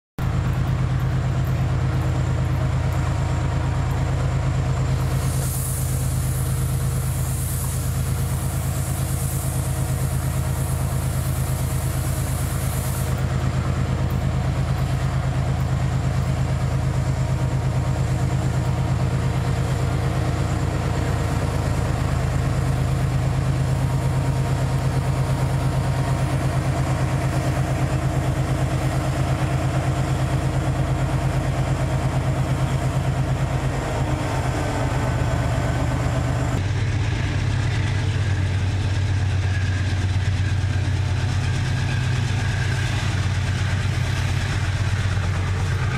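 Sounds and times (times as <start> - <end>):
locomotive engine humming: 0.2 - 45.9
high hiss: 5.1 - 13.2.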